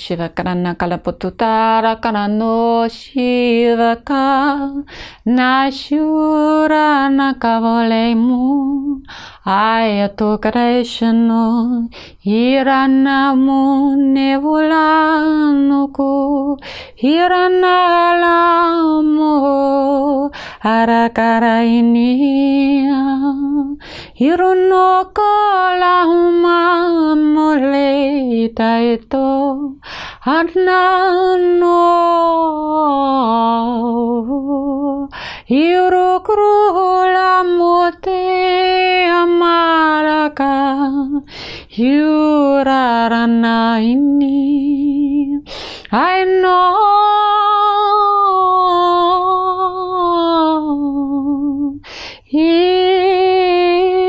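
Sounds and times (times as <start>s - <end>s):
short breath: 4.9s - 5.2s, 9.1s - 9.4s, 16.6s - 17.0s, 20.3s - 20.6s, 23.8s - 24.2s, 29.8s - 30.2s, 35.1s - 35.5s, 41.3s - 41.7s, 45.4s - 45.9s, 51.8s - 52.3s.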